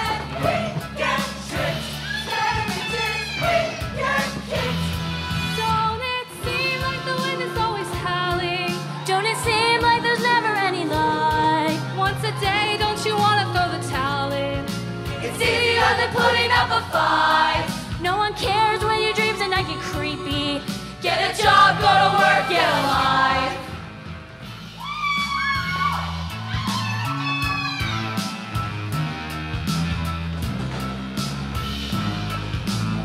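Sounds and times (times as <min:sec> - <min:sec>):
choir singing: 0:00.0 - 0:04.9, 0:15.1 - 0:17.8, 0:21.0 - 0:23.8
female soloists singing: 0:00.0 - 0:05.0, 0:15.2 - 0:23.7
bass line: 0:00.0 - 0:33.0.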